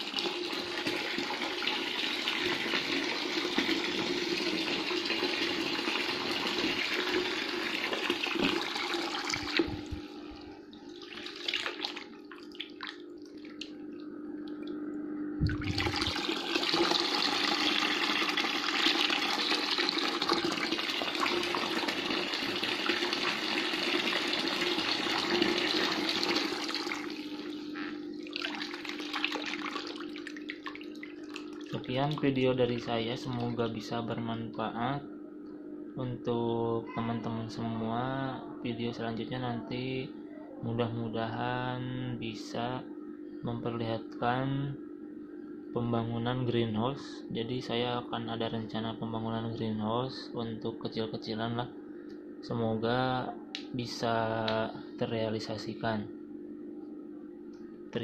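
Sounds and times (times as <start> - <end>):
water splashing into bucket: 0.0 - 10.0, 10.9 - 13.8, 15.4 - 27.3, 28.2 - 32.2
pump hum: 0.0 - 35.4.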